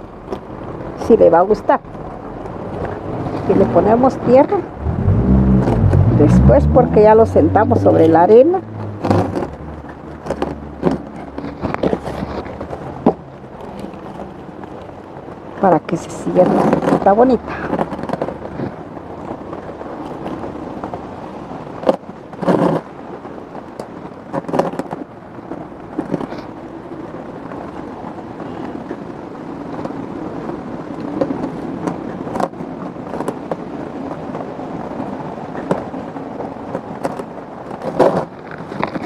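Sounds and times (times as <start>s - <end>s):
steady background noise: 0.0s - 39.0s
hands scraping potting soil: 5.5s - 13.2s.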